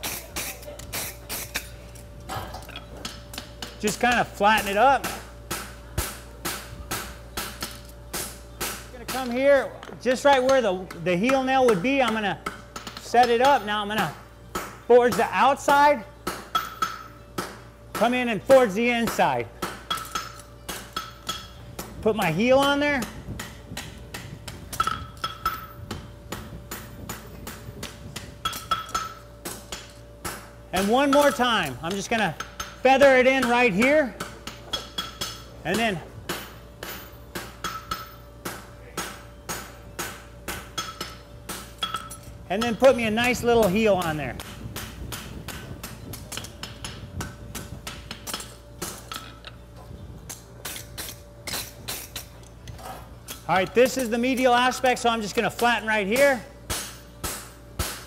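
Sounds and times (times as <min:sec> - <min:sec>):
hammer striking metal on anvil: 0:16.2 - 0:18.2, 0:19.0 - 0:21.6, 0:22.7 - 0:49.4, 0:53.3 - 0:58.0.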